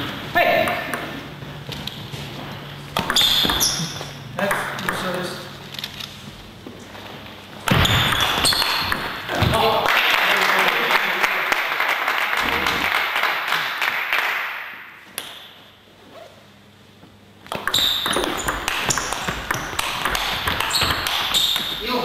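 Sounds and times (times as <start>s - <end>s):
crowd noise in hall: 6.8s - 15.1s
table tennis ball clicking: 17.5s - 21.7s.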